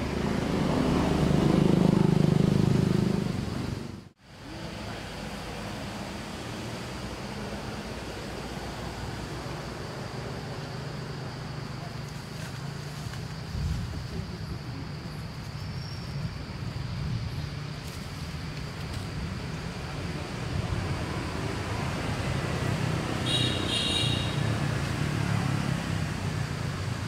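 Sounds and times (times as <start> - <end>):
traffic rumble: 0.0 - 27.0.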